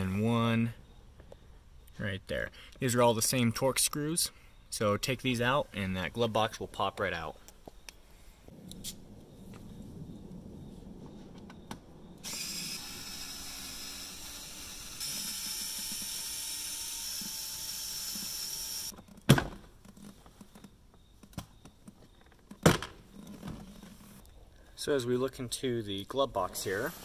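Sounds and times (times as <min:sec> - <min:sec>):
cordless screwdriver whining: 0:12.2 - 0:19.0.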